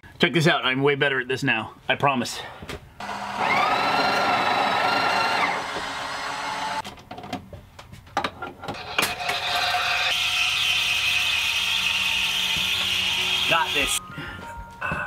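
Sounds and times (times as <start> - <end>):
espresso machine motor whine: 3.0 - 6.8, 9.3 - 14.0.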